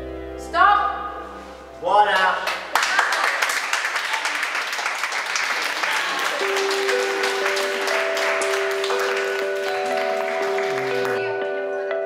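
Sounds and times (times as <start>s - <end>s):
group applauding: 2.2s - 11.4s
music with long held notes: 6.4s - 12.0s.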